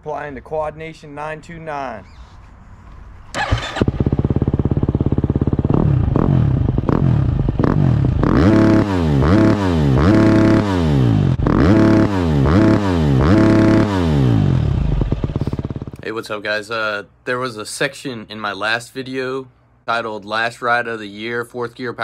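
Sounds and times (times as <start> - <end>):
dirt bike engine revving: 3.3 - 16.0
dirt bike engine starting: 3.3 - 16.0.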